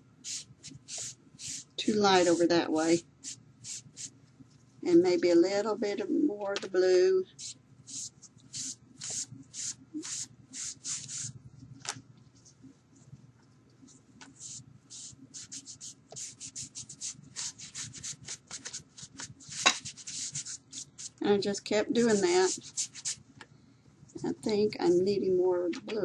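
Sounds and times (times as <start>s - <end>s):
wipe scrubbing on paper: 0.2s - 4.1s, 7.4s - 11.3s, 14.3s - 21.2s, 22.0s - 23.2s.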